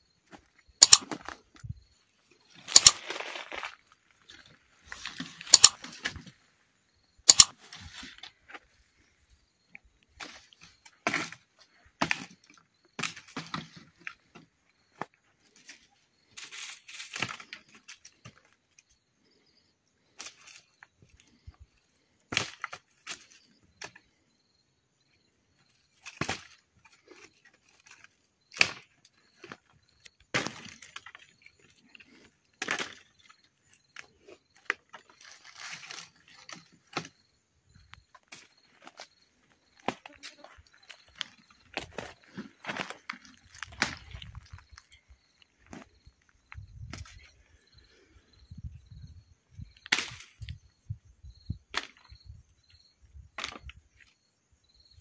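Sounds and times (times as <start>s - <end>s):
dry wood cracking and snapping: 42.7s - 45.0s.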